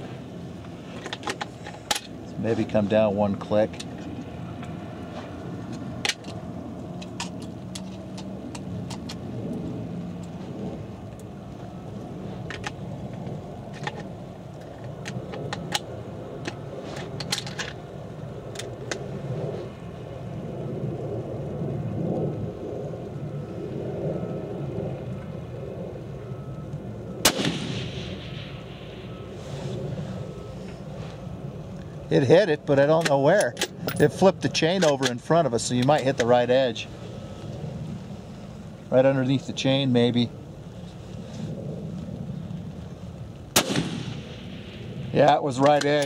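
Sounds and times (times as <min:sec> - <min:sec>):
steady low rumble: 0:00.0 - 0:46.0
rifle shot: 0:27.2 - 0:29.3, 0:43.5 - 0:45.3.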